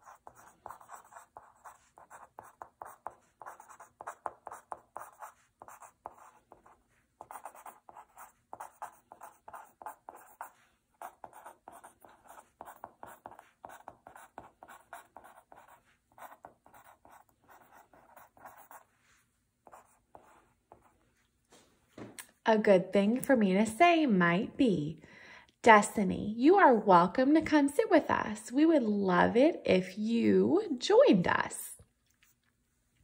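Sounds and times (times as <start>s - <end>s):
felt-tip pen scratching on paper: 0.0s - 21.0s.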